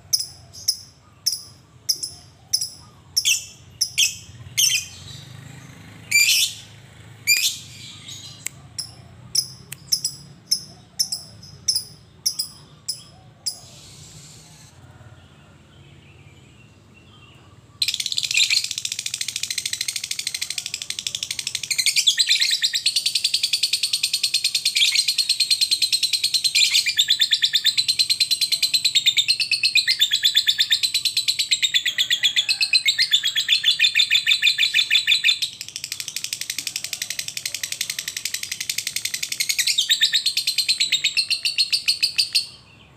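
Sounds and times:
lovebird chirping: 0.0 - 14.8, 16.2 - 42.9
lovebird chattering trill: 0.1 - 5.0, 7.3 - 14.7, 17.8 - 42.6.

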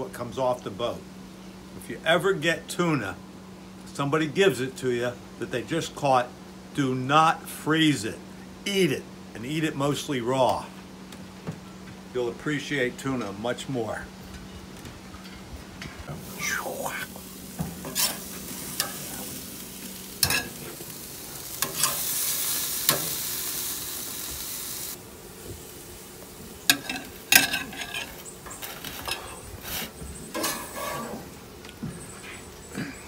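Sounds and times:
metal tongs scraping on grate: 16.2 - 23.8, 26.7 - 31.4
fish sizzling on a grill: 16.2 - 31.4.

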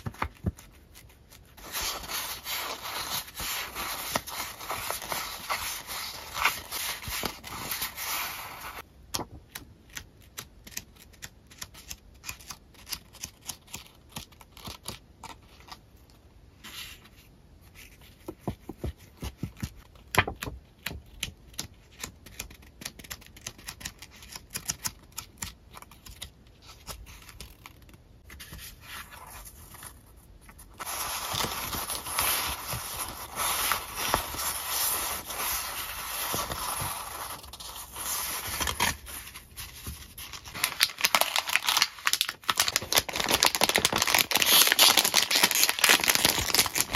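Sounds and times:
paper stack rustling: 30.5 - 46.9.

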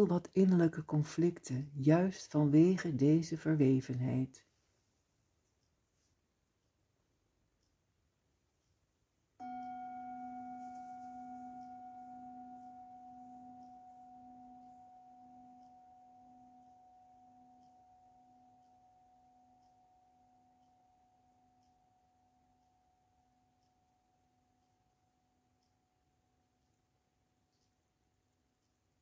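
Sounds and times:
metal singing bowl ringing: 9.4 - 21.4.

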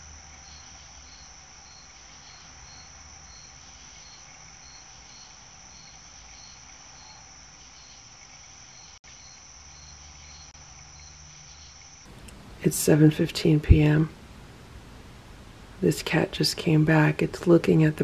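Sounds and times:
pulsing insect chirp: 0.0 - 12.1
crickets trilling: 0.0 - 12.2.

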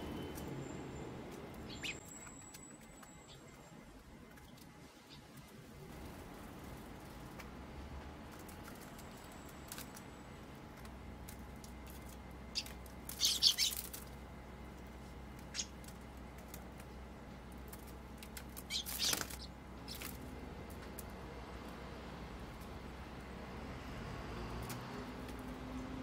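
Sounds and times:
bird wings fluttering: 17.7 - 20.2.

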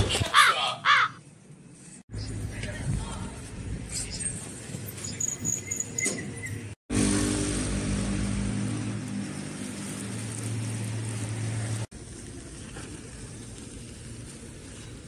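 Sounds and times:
vehicle engine humming: 6.6 - 15.0
street noise hiss: 6.9 - 15.0.

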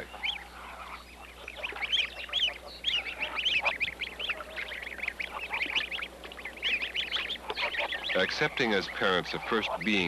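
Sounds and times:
goslings peeping: 0.0 - 10.0.

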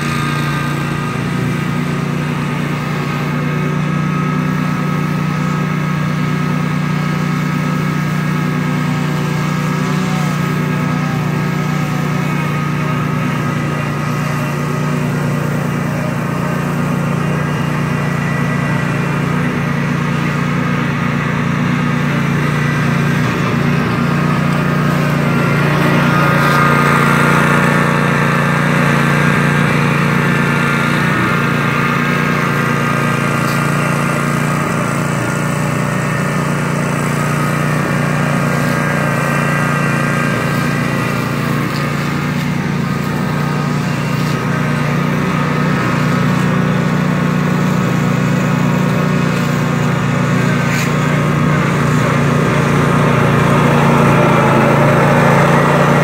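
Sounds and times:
riding mower engine running: 0.0 - 56.0.

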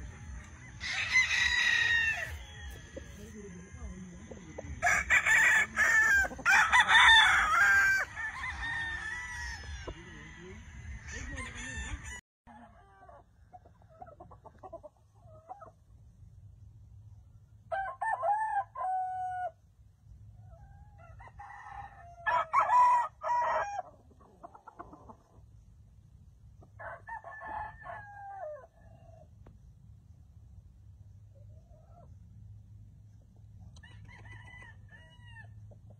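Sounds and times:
roosters crowing: 0.0 - 3.9, 4.6 - 13.2, 17.7 - 19.6, 20.9 - 24.0, 26.8 - 29.3, 33.8 - 35.6
rooster clucks: 4.8 - 8.5, 11.0 - 15.8, 23.6 - 25.4.

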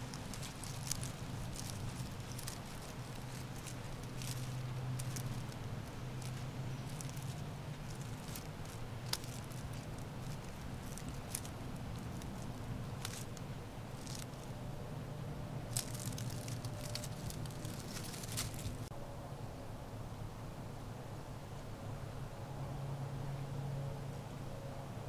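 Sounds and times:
light crackles and clicks: 0.0 - 14.5, 15.7 - 18.9
steady low hum: 0.0 - 21.4.

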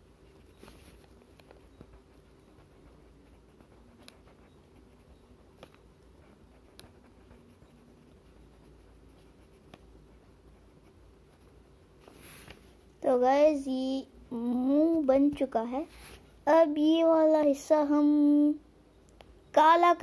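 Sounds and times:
crayon scratching on paper: 0.0 - 12.6.

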